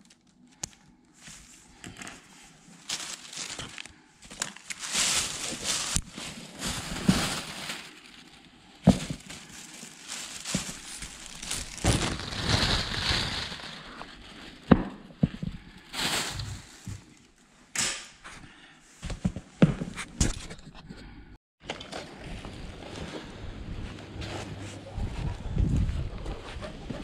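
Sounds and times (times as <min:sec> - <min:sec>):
plastic bag crinkling: 0:00.0 - 0:14.6, 0:15.8 - 0:17.3.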